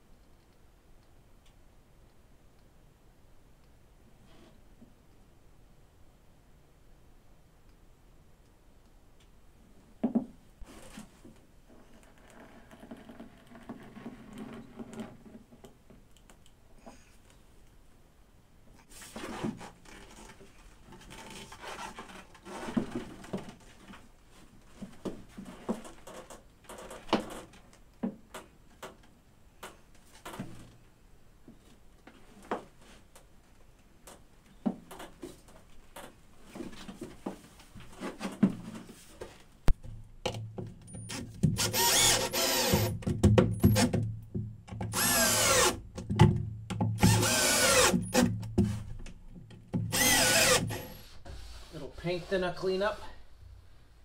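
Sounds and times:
knocks and scrapes of handling: 0:10.1 - 0:16.0, 0:18.8 - 0:28.9, 0:34.5 - 0:41.6, 0:48.4 - 0:49.9
cordless drill driving screws: 0:41.6 - 0:43.0, 0:44.9 - 0:45.8, 0:47.0 - 0:48.3, 0:49.9 - 0:51.0.

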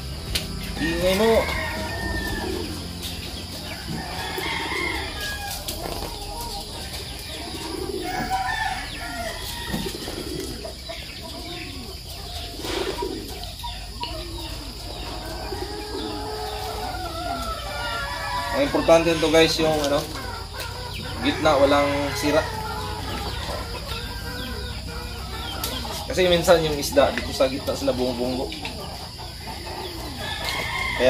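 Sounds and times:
chickens clucking: 0:00.0 - 0:31.0
chicken chirps: 0:00.2 - 0:31.0.

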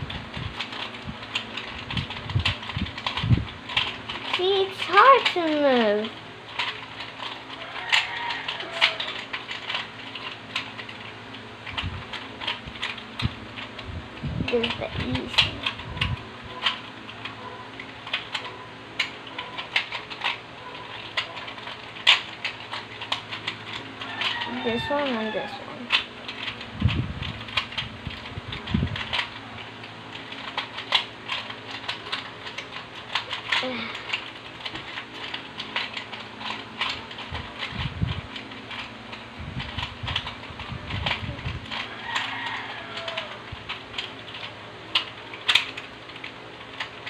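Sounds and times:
plastic cube twisting clicks: 0:00.0 - 0:47.0
low rumble: 0:26.5 - 0:29.3.

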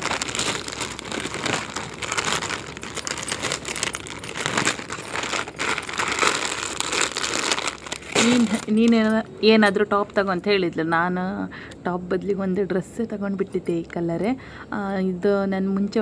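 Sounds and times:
plastic packet crinkling: 0:00.0 - 0:09.2.

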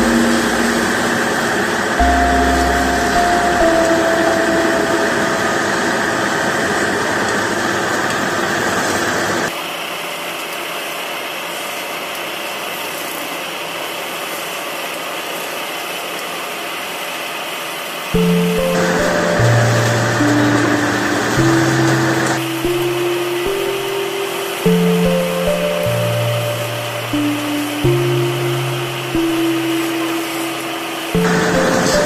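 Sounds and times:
musical tones: 0:00.0 - 0:07.1, 0:18.2 - 0:32.0.

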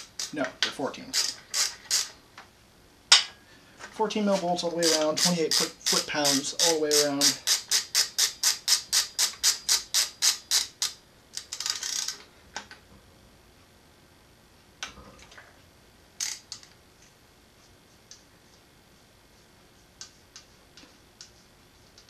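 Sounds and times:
ratchet wrench clicking: 0:00.0 - 0:00.4, 0:01.1 - 0:02.2, 0:04.8 - 0:12.2, 0:16.2 - 0:16.7.

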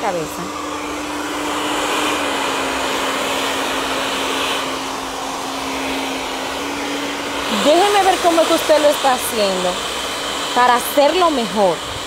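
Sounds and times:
hair dryers running: 0:00.0 - 0:12.0.

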